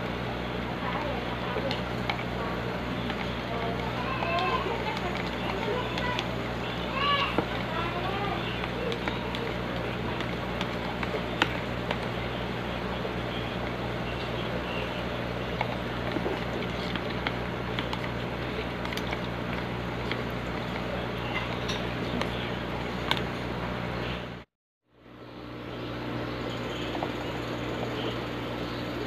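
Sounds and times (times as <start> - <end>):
low hum and hiss: 0.0 - 29.0
plastic spoon stirring water: 0.7 - 23.4.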